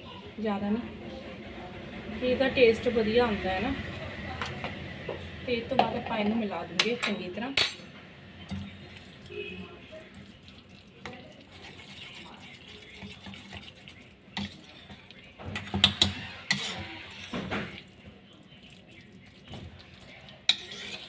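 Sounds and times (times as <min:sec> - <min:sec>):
spoon stirring wet batter: 0:08.4 - 0:21.0.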